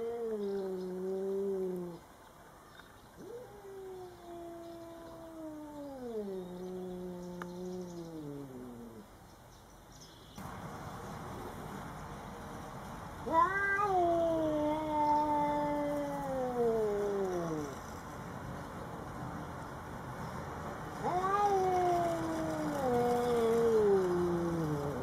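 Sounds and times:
cat growling yowl: 0:03.2 - 0:09.1, 0:13.2 - 0:17.9, 0:21.0 - 0:25.0
cat hissing: 0:13.3 - 0:18.0, 0:21.0 - 0:25.0.

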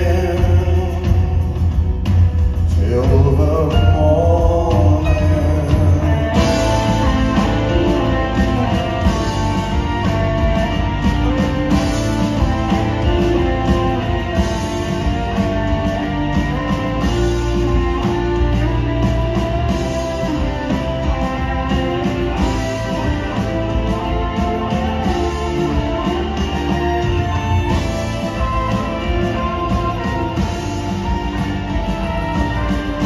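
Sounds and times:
electric guitar: 0:00.0 - 0:33.0
live band playing: 0:00.0 - 0:33.0.

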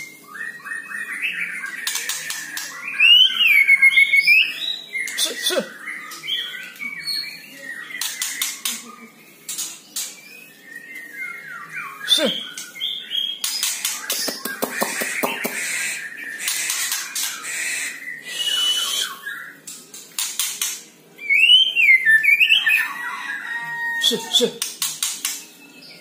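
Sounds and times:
bird singing whistled notes: 0:00.0 - 0:05.3, 0:15.8 - 0:19.6, 0:21.2 - 0:23.2
bird harsh rattling calls: 0:13.4 - 0:18.8.

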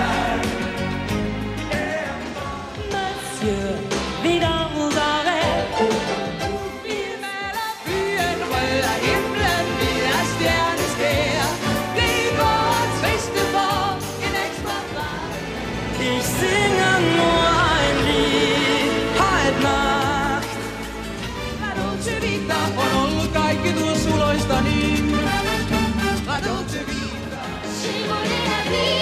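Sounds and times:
pop song with band: 0:00.0 - 0:29.0
woman singing lead: 0:01.8 - 0:23.1
man singing along: 0:15.9 - 0:20.8, 0:21.6 - 0:27.6.

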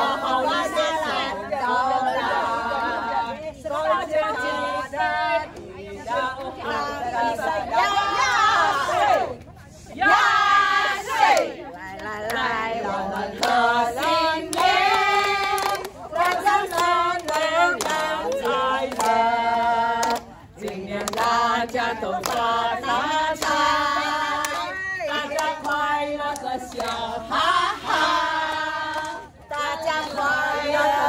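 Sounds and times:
women singing together: 0:00.0 - 0:31.0
hands clapping: 0:13.3 - 0:27.1, 0:27.9 - 0:30.4.

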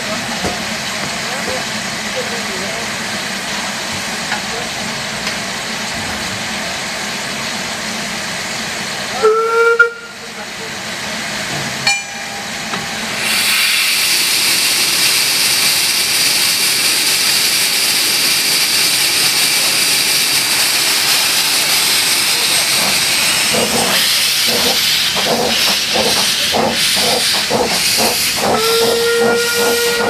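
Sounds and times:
steam whistle blast: 0:09.2 - 0:10.2, 0:28.5 - 0:30.0
loud rush of steam: 0:13.0 - 0:30.0
steam hissing: 0:13.0 - 0:30.0.

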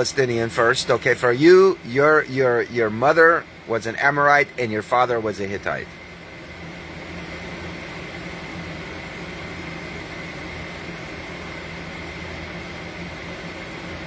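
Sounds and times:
faint high whine: 0:00.0 - 0:14.0
mechanical hum: 0:00.0 - 0:14.0.

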